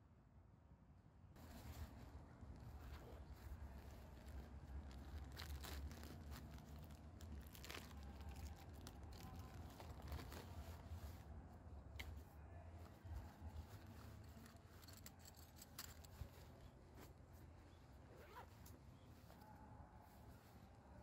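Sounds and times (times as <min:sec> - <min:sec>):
faint low rumble: 0:00.0 - 0:21.0
backpack nylon rustling: 0:01.4 - 0:11.3, 0:12.8 - 0:20.8
plastic bag crinkling: 0:03.3 - 0:11.0
sharp crackles: 0:03.4 - 0:11.1.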